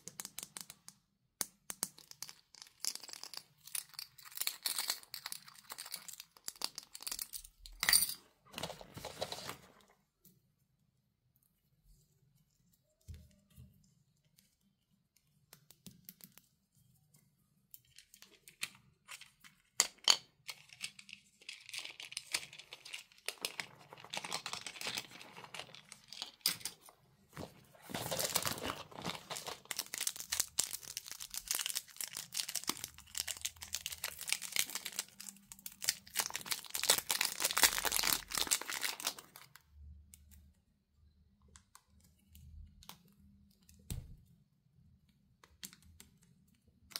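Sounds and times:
plastic packaging crinkling: 2.9s - 7.1s, 27.4s - 39.6s.

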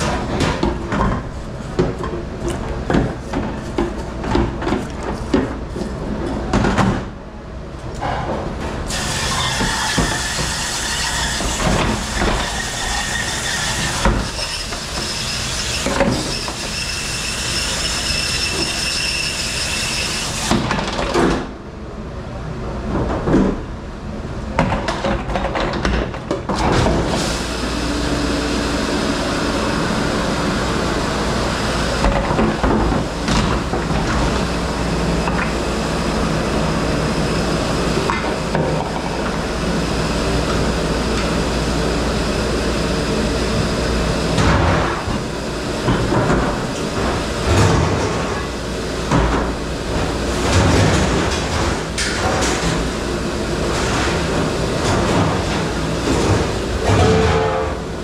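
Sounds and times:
dish machine running: 8.9s - 21.0s, 26.6s - 58.0s
dishes and racks clattering: 53.6s - 58.0s.

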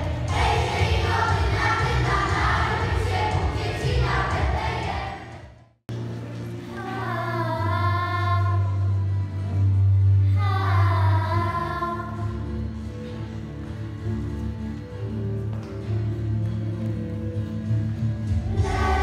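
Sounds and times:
children singing a carol: 0.0s - 5.4s, 18.6s - 19.0s.

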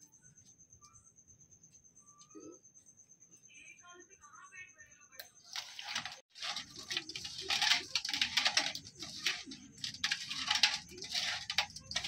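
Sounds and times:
fish pieces squelching in metal bowl: 5.5s - 12.0s.

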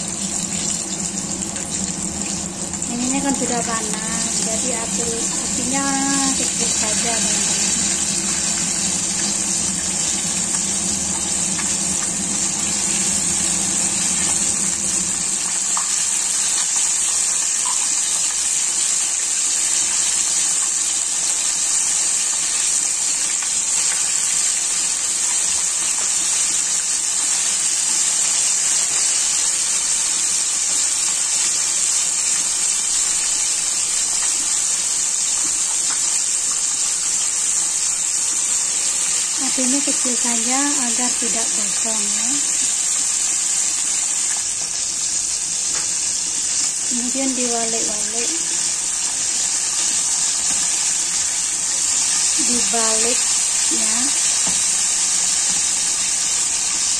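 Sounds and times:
low hum: 0.0s - 16.3s
chicken deep-frying in oil: 0.0s - 56.9s.

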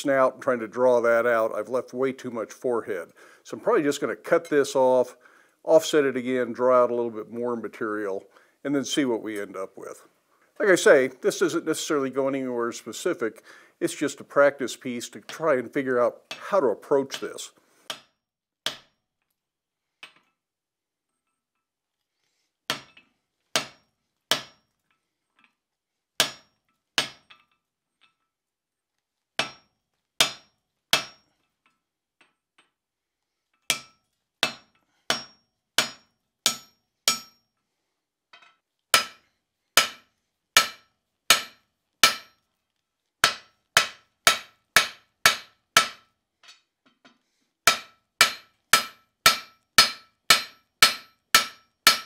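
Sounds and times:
hammer striking iron on anvil: 18.7s - 18.9s, 23.6s - 24.6s, 26.2s - 27.4s, 29.4s - 31.3s, 33.7s - 37.5s, 38.4s - 39.2s, 39.8s - 42.4s, 43.2s - 46.6s, 47.7s - 52.0s.

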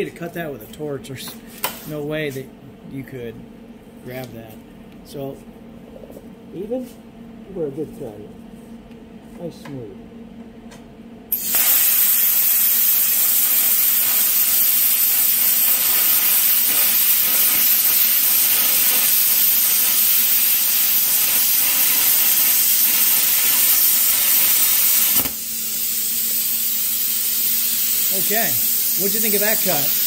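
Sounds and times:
plasma arc hissing: 11.3s - 30.0s.

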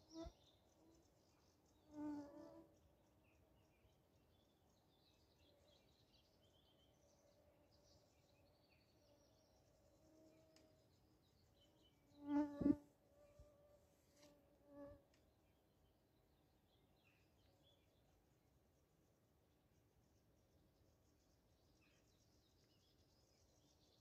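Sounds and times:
faint birdsong: 0.0s - 24.0s
flying insect buzzing: 12.2s - 13.6s.

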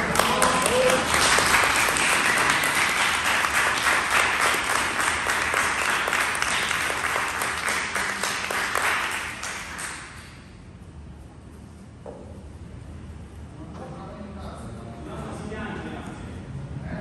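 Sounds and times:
group applauding: 0.0s - 10.4s.

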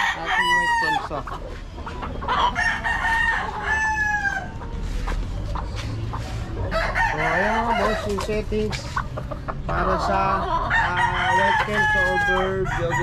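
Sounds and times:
rooster crowing: 0.0s - 1.0s, 2.5s - 4.6s, 6.7s - 8.0s, 10.7s - 13.0s.

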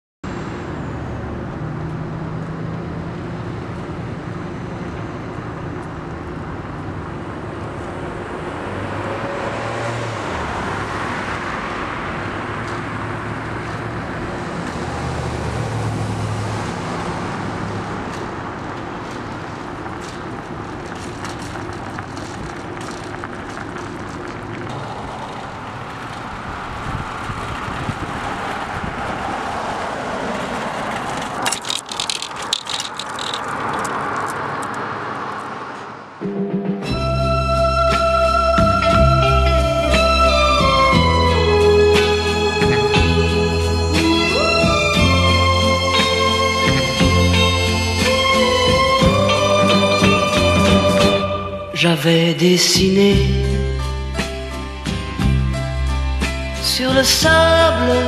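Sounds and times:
vehicles passing: 0.2s - 58.0s
light clicks and rattles: 30.9s - 34.8s.

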